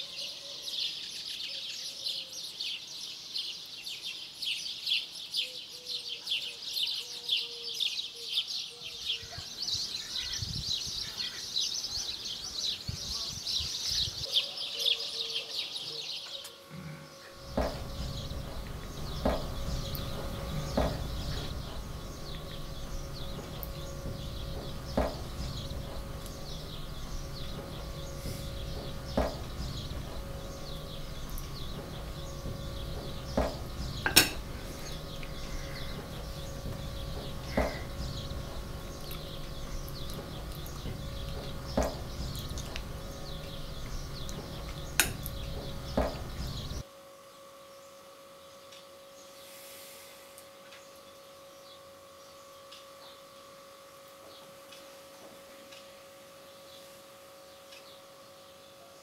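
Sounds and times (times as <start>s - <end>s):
small birds chirping: 0.0s - 46.9s
steady low hum: 8.4s - 59.0s
short sharp knocks: 28.8s - 29.5s
cutlery knocking on plate: 33.4s - 34.4s.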